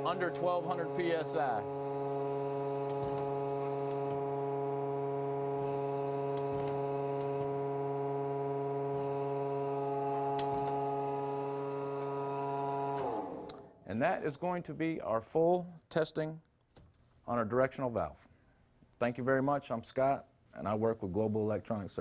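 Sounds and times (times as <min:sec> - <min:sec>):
hydraulic pump and motor hum: 0:00.0 - 0:13.7.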